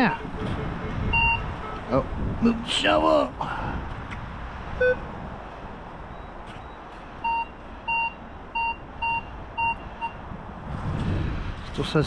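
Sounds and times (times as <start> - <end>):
metal detector beeps: 1.1 - 1.4.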